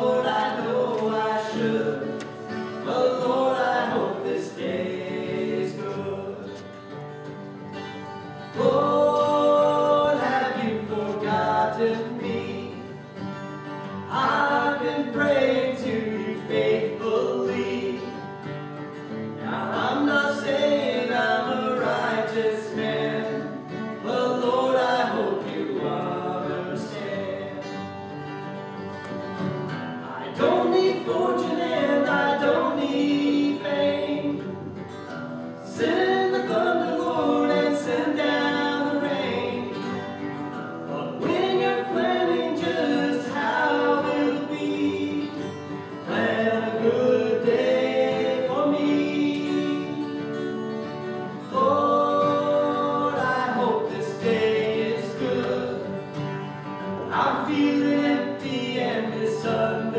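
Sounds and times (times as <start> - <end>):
acoustic guitars playing: 0.0 - 59.9
person singing: 51.3 - 56.1.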